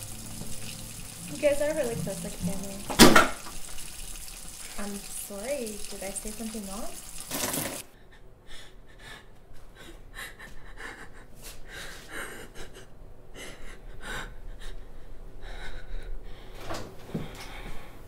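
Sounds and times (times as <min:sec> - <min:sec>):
person breathing heavily: 0:07.9 - 0:18.0.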